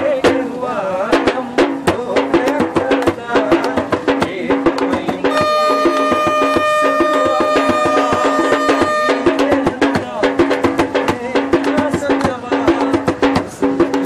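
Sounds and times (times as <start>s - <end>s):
percussion music: 0.0s - 14.0s
steady high tone: 5.3s - 9.5s.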